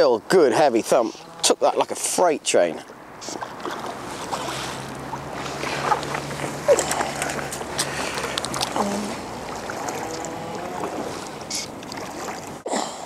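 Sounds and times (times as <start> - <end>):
water splashing around a net: 3.4 - 12.6.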